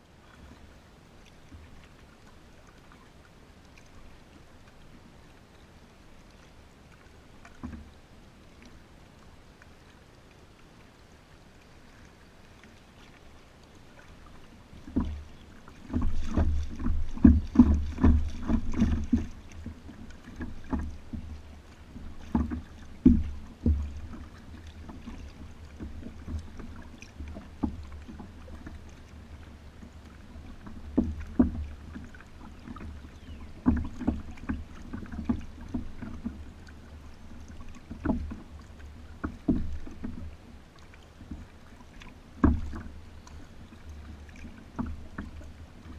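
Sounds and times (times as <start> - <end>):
kayak paddle splashes and thumps: 11.6 - 45.9.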